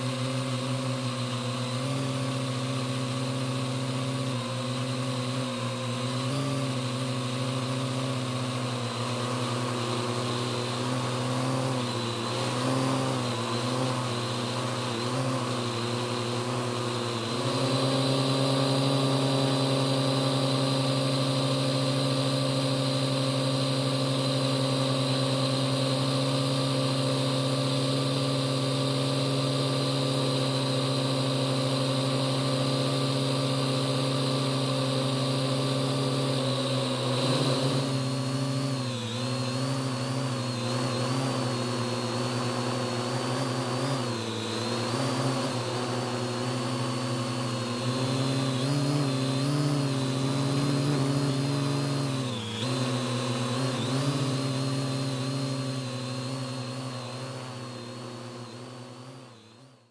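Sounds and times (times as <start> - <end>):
drone motors humming and whining: 0.0 - 59.9.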